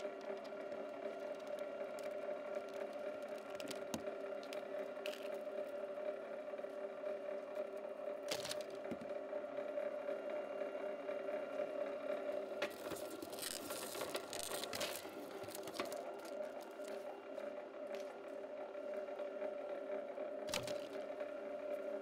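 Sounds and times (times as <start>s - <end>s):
electric motor humming: 0.0s - 22.0s
cable scraping rustle: 12.6s - 18.2s.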